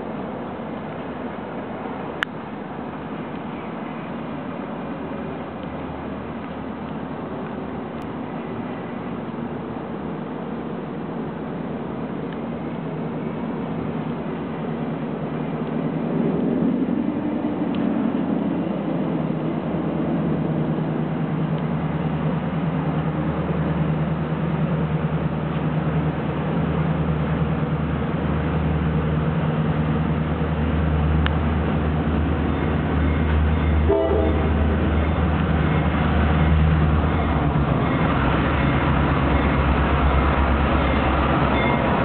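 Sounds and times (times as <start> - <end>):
diesel locomotive engines droning: 0.0 - 42.0.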